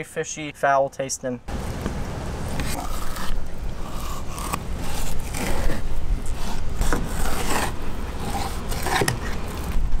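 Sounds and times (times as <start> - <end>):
knife scraping fish skin: 2.6 - 9.5.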